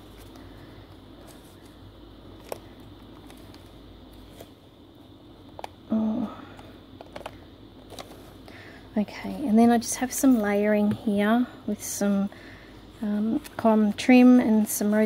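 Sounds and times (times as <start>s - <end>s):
paper pages handled: 0.0s - 4.6s.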